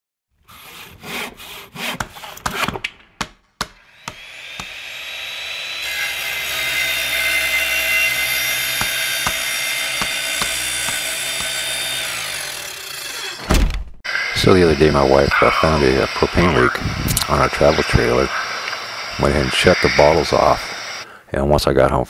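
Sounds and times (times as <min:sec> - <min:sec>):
sawing strokes: 0:00.4 - 0:02.8, 0:03.8 - 0:13.5
whirring power tool whine: 0:03.8 - 0:13.5, 0:14.1 - 0:21.0.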